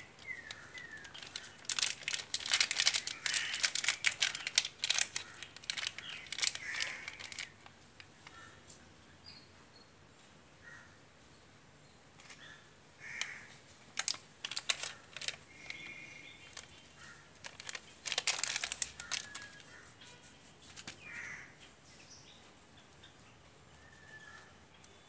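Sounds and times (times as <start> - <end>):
birds calling: 0.0 - 10.0, 14.4 - 25.0
small metal parts clicking: 0.2 - 7.5, 14.0 - 15.9.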